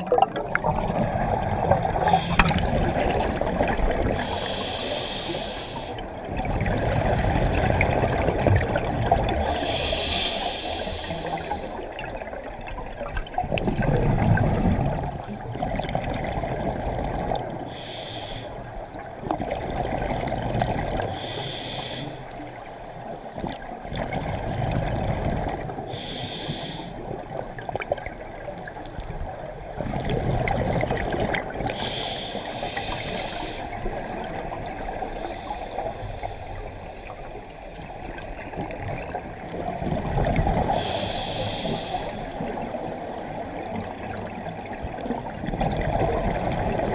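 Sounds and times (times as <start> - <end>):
diver breathing through regulator: 2.0 - 2.9, 4.1 - 6.1, 9.4 - 11.9, 17.7 - 18.6, 21.1 - 22.5, 25.9 - 27.1, 31.7 - 38.2, 40.7 - 42.7.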